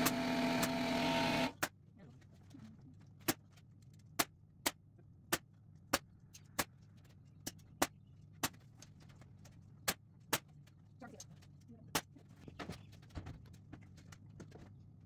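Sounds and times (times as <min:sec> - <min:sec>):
nail gun firing: 0:00.0 - 0:01.6.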